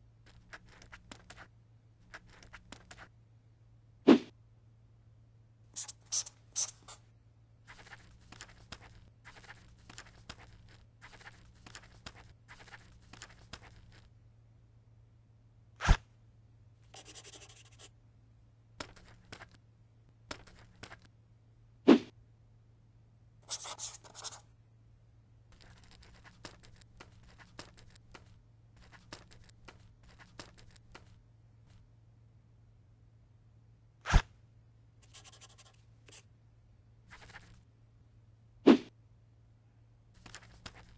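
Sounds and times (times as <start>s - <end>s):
faint low hum: 0.0s - 40.9s
pen scratching on paper: 5.8s - 7.0s, 7.7s - 14.0s, 17.0s - 17.9s, 23.4s - 24.4s, 25.6s - 28.1s, 35.0s - 36.2s, 37.1s - 37.6s.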